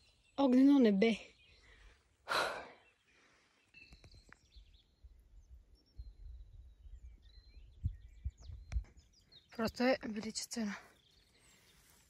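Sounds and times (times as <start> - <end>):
birds chirping and whistling: 0.0 - 12.0
wind rumble on microphone: 3.9 - 9.9.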